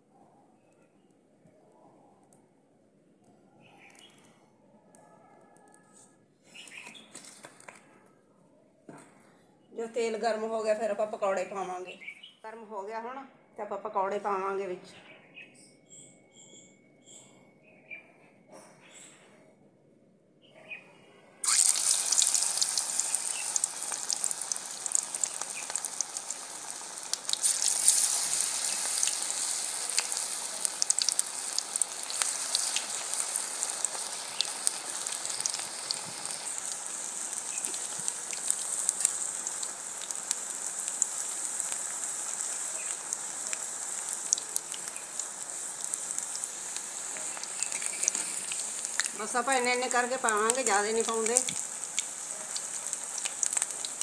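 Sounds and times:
food sizzling in hot oil: 21.4 - 54.0.

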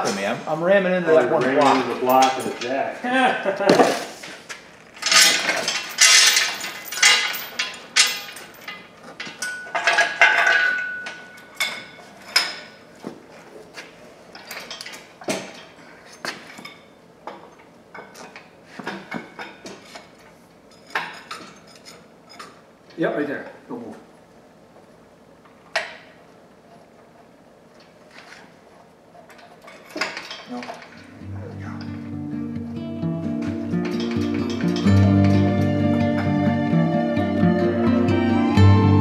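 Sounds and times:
metal clanks and knocks: 5.0 - 12.8, 33.4 - 35.4.

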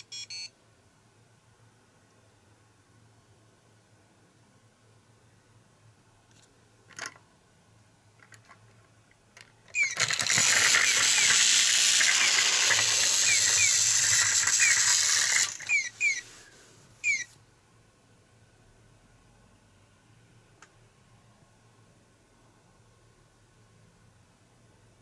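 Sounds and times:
toy motor whirring: 9.7 - 16.3, 17.0 - 17.3
short chirps: 13.1 - 16.3.

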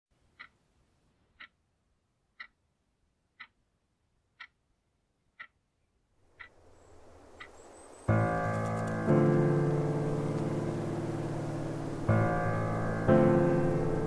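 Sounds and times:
clock ticking: 0.3 - 1.6, 2.3 - 2.7, 3.3 - 3.7, 4.3 - 4.7, 5.3 - 5.6
low rushing sound: 6.9 - 14.0.

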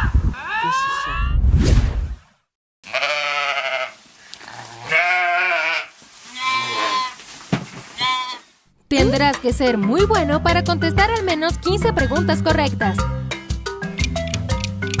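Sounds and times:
short whoosh: 1.2 - 2.3
animal bleating: 2.8 - 7.2, 8.0 - 8.6.

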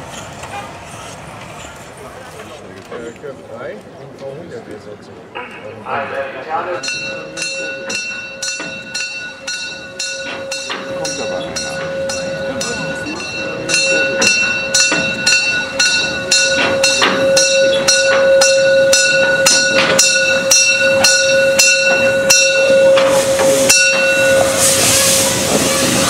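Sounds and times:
steam locomotive whine and knocking: 5.4 - 26.0
hissing steam rush: 20.3 - 26.0.

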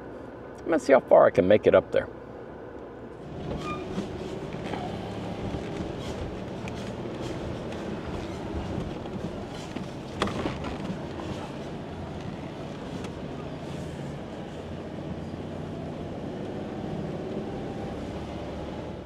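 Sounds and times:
car engine at low revs: 2.0 - 19.0.

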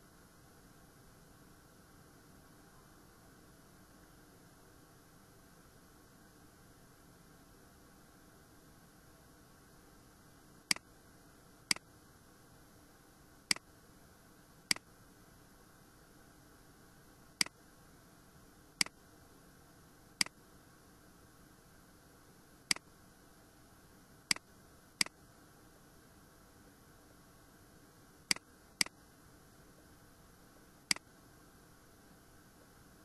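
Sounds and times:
faint steady hiss: 0.0 - 33.0
computer mouse clicking: 28.3 - 29.0, 30.9 - 31.1.

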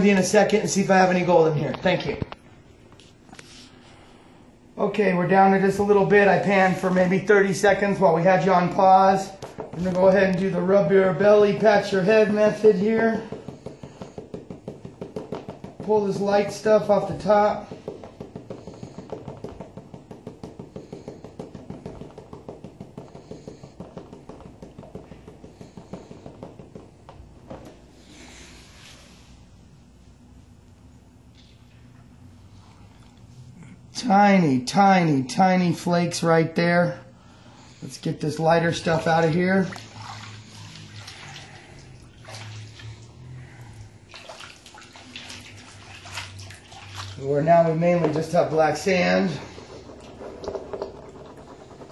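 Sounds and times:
low steady hum: 0.0 - 51.9
hand tapping gold pan: 12.4 - 27.8
water swirling in pan: 38.8 - 47.4.

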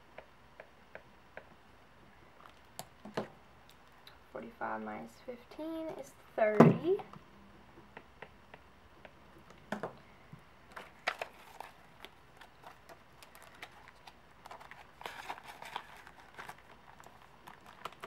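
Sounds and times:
paper rustling: 10.7 - 18.0.

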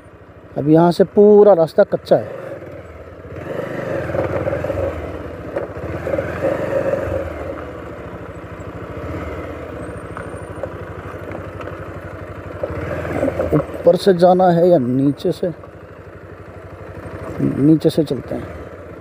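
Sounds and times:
motorcycle engine running: 0.0 - 19.0.

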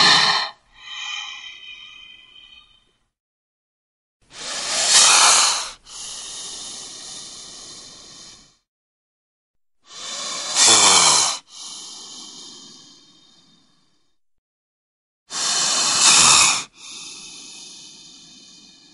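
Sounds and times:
snake hissing: 0.0 - 2.7, 4.3 - 8.6, 9.9 - 13.8, 15.3 - 18.9.

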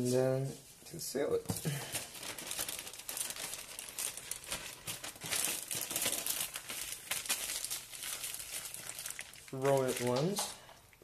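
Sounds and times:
plastic bag crinkling: 1.6 - 10.6.

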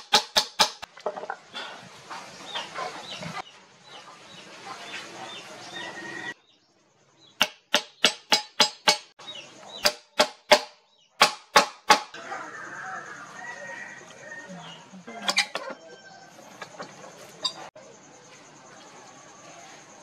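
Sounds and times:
hammer striking metal pins: 7.4 - 9.1.

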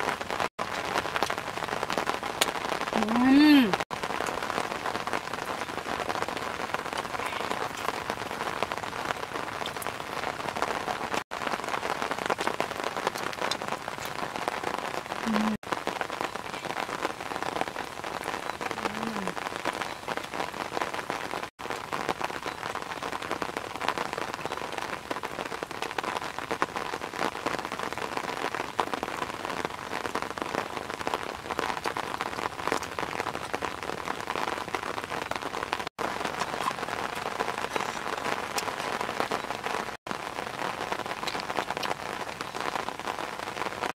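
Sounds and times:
rain pattering: 0.0 - 43.9.

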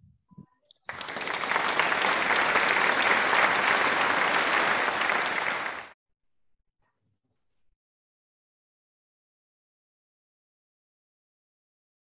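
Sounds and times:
people clapping: 0.8 - 6.0.

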